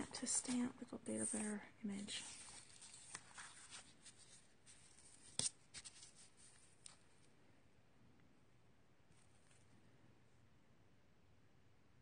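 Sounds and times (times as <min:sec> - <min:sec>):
paper rustling: 0:00.0 - 0:07.3.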